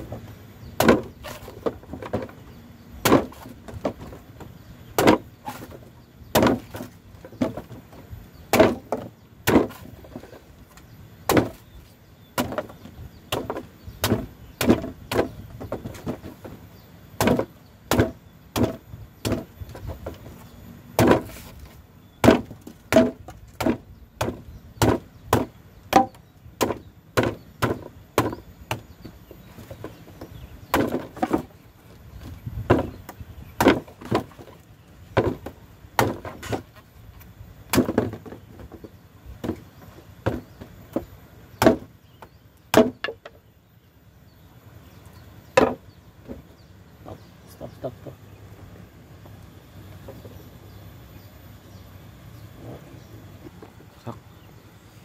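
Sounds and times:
machete chopping coconut husk: 0:00.8 - 0:02.3, 0:03.0 - 0:04.2, 0:04.9 - 0:07.8, 0:08.5 - 0:10.4, 0:11.2 - 0:16.6, 0:17.2 - 0:20.3, 0:20.9 - 0:30.0, 0:30.7 - 0:31.5, 0:32.7 - 0:34.5, 0:35.1 - 0:36.7, 0:37.7 - 0:38.4, 0:41.6 - 0:41.9, 0:42.7 - 0:43.3.

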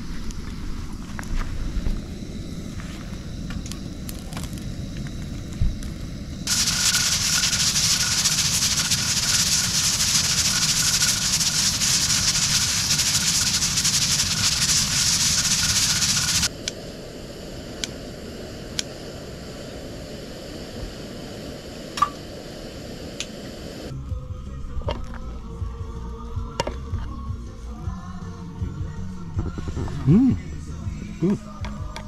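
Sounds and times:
cooking hiss: 0:00.0 - 0:24.0.

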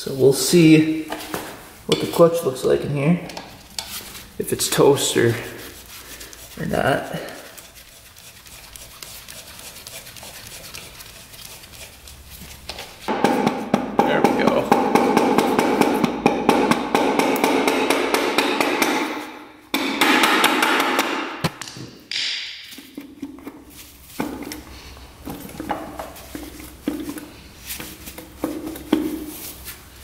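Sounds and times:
rubber mallet striking metal cover: 0:13.1 - 0:22.7.

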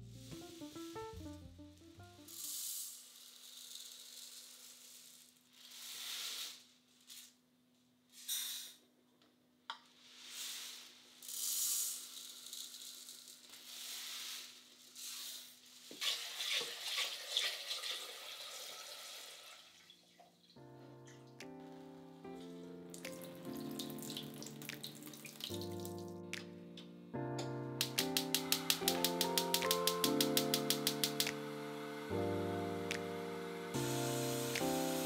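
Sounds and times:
dry rice pouring into plastic cup: 0:02.3 - 0:07.2, 0:10.1 - 0:19.3, 0:27.9 - 0:35.0
sharp click: 0:27.4 - 0:31.4.

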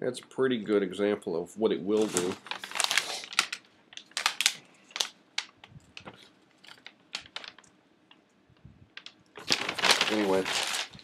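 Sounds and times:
paper crinkling and rustling: 0:01.9 - 0:07.7, 0:09.0 - 0:11.0.

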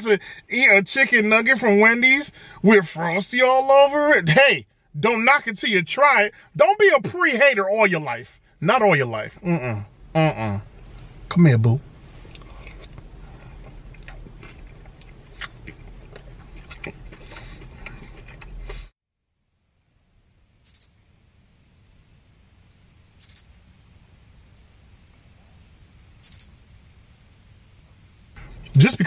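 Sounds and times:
chewing with mouth clicks: 0:12.2 - 0:18.9
crickets chirping: 0:19.1 - 0:28.4.

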